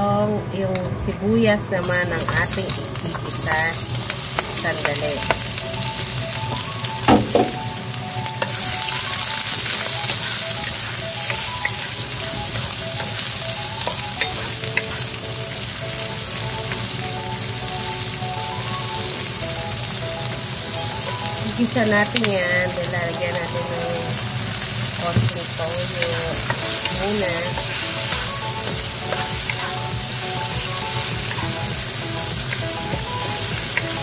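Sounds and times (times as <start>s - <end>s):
onions sizzling in hot oil: 1.8s - 34.0s
sharp knocks: 7.1s - 7.6s.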